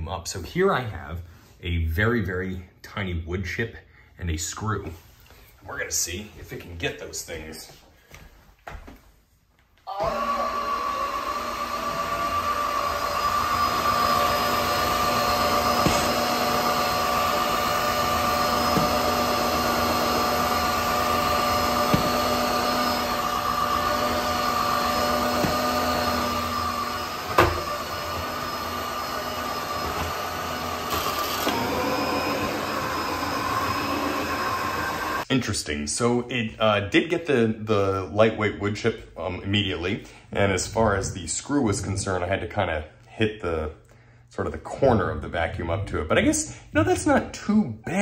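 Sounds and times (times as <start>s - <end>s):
vacuum mop motor whine: 9.9s - 35.3s.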